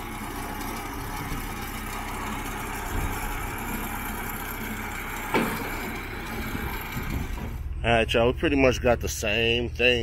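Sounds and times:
tractor diesel engine running: 0:00.0 - 0:10.0
metallic clunk: 0:05.2 - 0:07.7.

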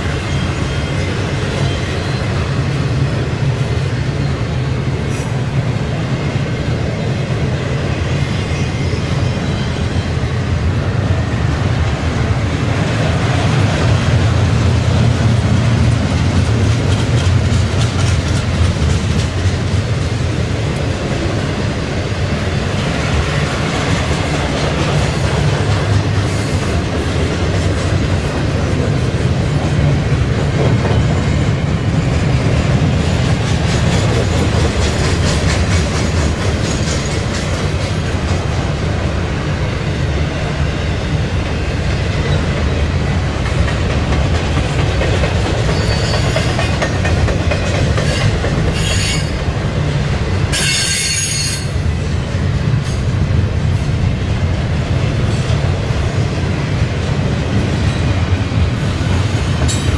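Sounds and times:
train wheels rumbling on rail: 0:00.0 - 0:59.9
high-pitched wheel squeals: 0:45.7 - 0:46.6.

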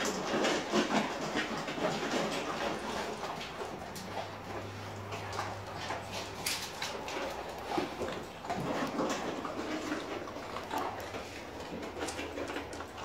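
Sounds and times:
dogs crunching kibble: 0:00.0 - 0:13.0.

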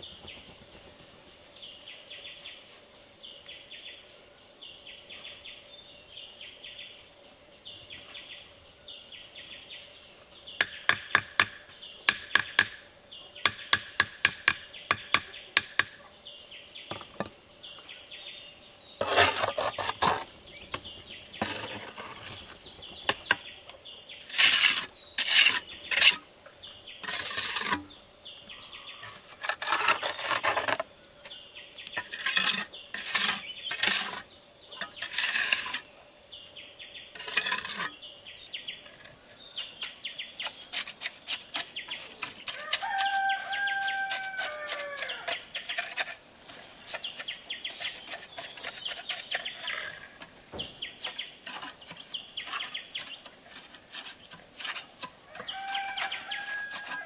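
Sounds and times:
hammer tapping concrete block: 0:10.6 - 0:12.8
trowel scraping mortar: 0:19.0 - 0:23.4, 0:24.2 - 0:26.2, 0:27.0 - 0:28.0, 0:29.0 - 0:35.9, 0:37.2 - 0:38.0, 0:38.9 - 0:57.0.

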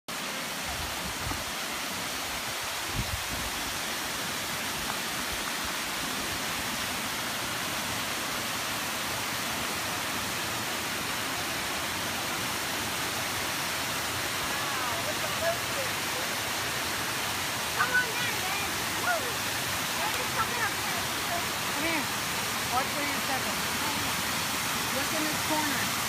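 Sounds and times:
water rushing over spillway: 0:00.1 - 0:26.0.

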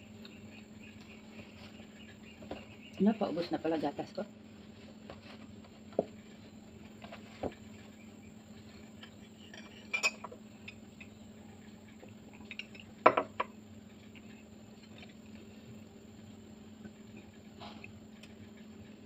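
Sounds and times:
mug and cutlery clinking: 0:09.4 - 0:10.8.

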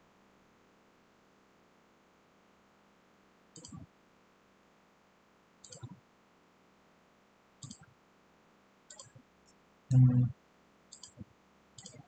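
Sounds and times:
computer mouse clicking: 0:03.6 - 0:03.8, 0:05.6 - 0:06.0, 0:07.6 - 0:07.9, 0:08.9 - 0:09.2, 0:10.9 - 0:11.2, 0:11.8 - 0:12.0.

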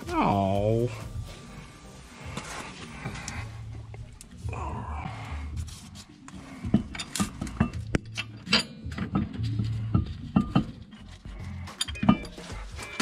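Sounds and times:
background music with bass: 0:00.0 - 0:13.0
metallic clinks of brake parts: 0:06.8 - 0:13.0.

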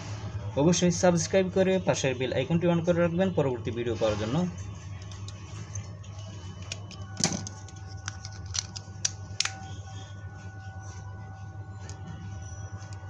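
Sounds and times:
steady low hum: 0:04.5 - 0:13.0.

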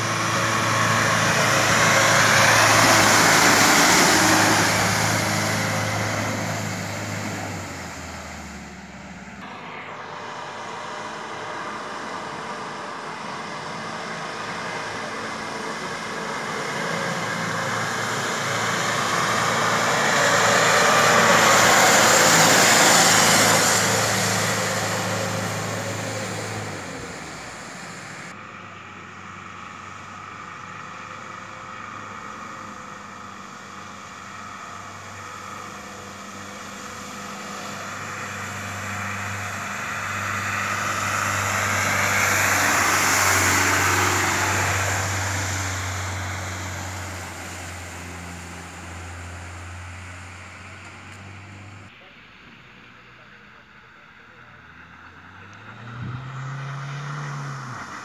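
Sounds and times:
car engine running: 0:00.0 - 0:28.4, 0:36.6 - 0:52.1.

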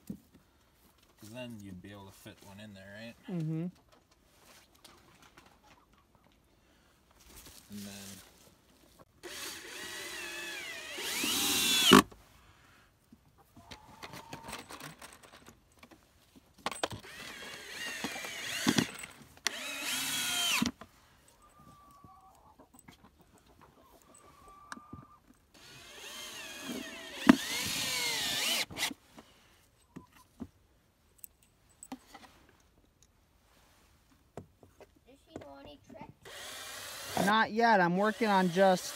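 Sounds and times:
power drill driving screws into wood: 0:09.2 - 0:12.2, 0:16.7 - 0:20.8, 0:25.5 - 0:29.0, 0:36.2 - 0:38.9.

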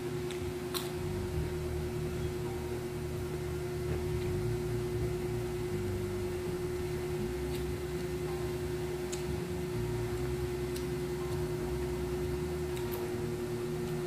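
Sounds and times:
steady hum: 0:00.0 - 0:14.0
chewing and mouth sounds: 0:00.3 - 0:01.0.

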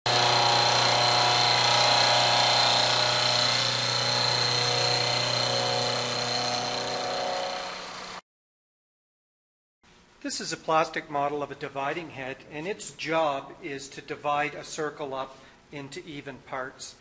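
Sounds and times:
metal cutting noise: 0:00.1 - 0:08.2
milling machine spindle whine: 0:00.1 - 0:08.2.

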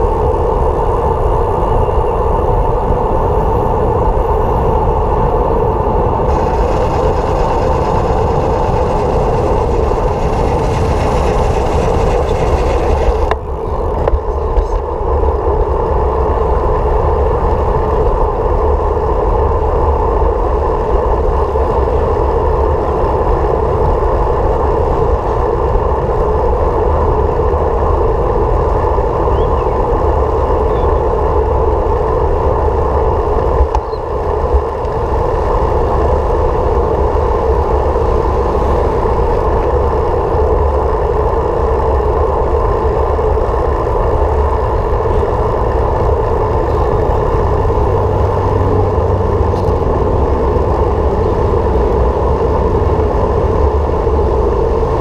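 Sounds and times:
vehicle cruising: 0:00.0 - 0:55.0.

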